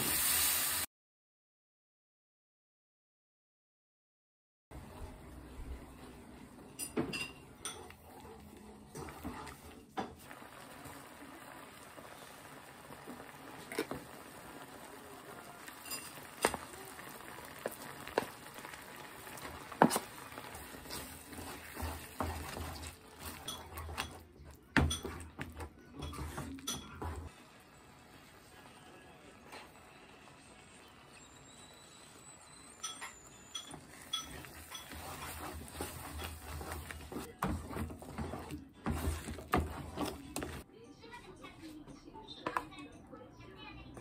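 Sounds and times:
soft simmer: 4.8s - 40.7s
wooden spatula scraping a pan: 5.8s - 14.6s, 15.7s - 27.4s, 32.8s - 40.6s.

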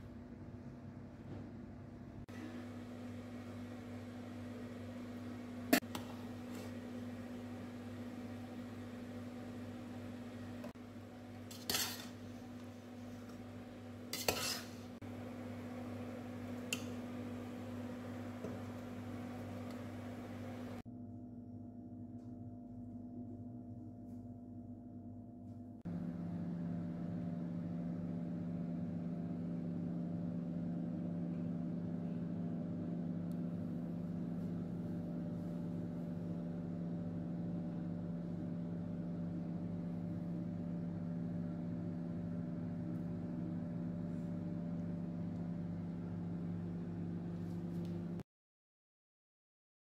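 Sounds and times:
low hum of held tones: 15.0s - 48.2s.

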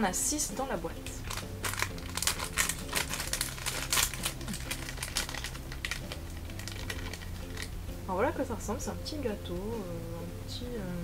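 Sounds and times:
plastic wrapper crinkling: 1.2s - 7.8s.

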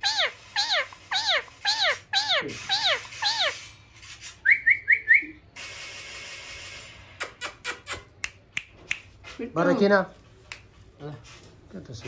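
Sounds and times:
parakeet squawking and chirping: 0.0s - 5.4s.

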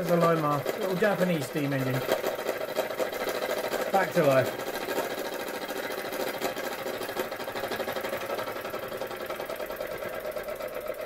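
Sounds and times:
toy steam engine chuffing: 0.0s - 11.0s.

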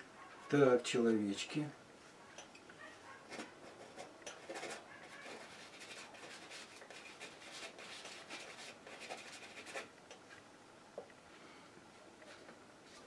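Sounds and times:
palette knife scraping paint: 3.3s - 9.9s.

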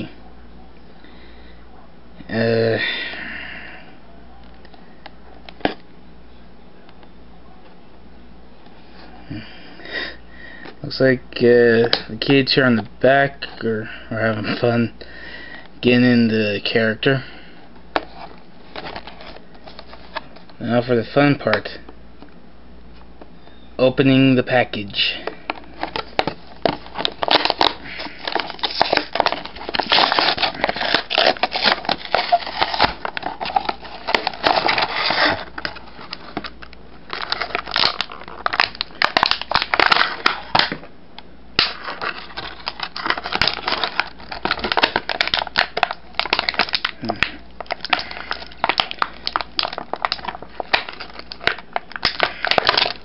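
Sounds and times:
plastic packaging crackling: 25.2s - 40.9s, 41.6s - 53.0s.

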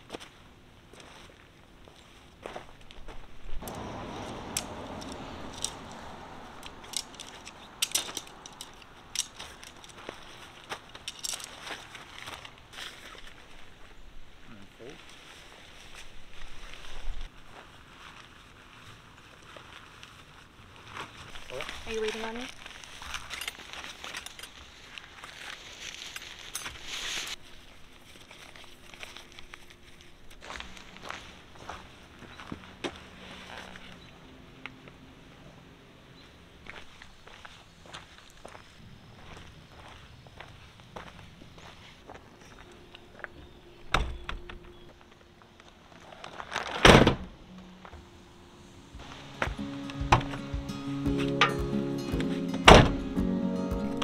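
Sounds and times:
rustling and crinkling: 6.6s - 34.0s, 44.5s - 48.0s
loud heavy thump: 52.7s - 53.0s.

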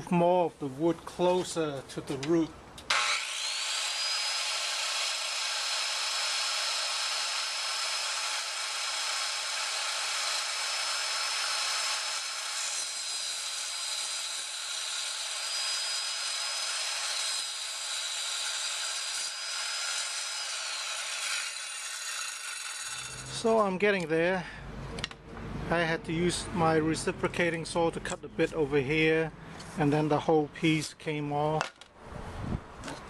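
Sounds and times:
table saw motor whine: 2.9s - 23.4s
saw blade cutting wood: 2.9s - 23.6s.

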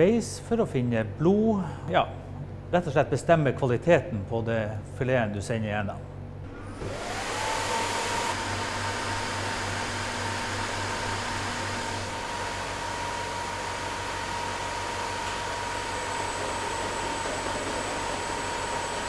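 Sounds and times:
machine fans and conveyor rushing: 6.4s - 19.0s
machine whine: 6.4s - 19.0s.

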